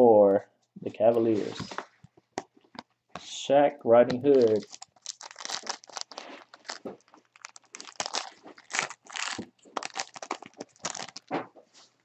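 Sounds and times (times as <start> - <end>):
cards being handled: 1.1 - 3.3, 4.1 - 11.5
card pack wrapper crinkling: 4.1 - 11.4.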